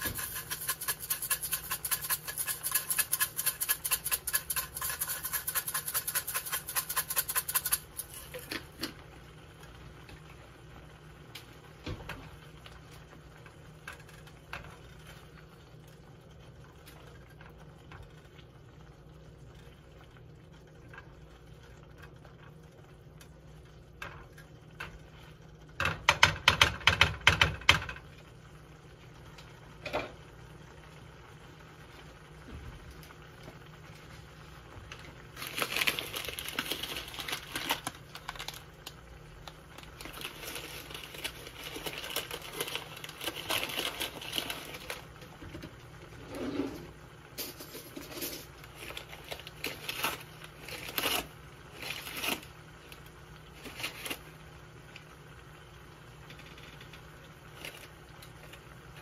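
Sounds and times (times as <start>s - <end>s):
spice container rattling: 0.0s - 8.3s.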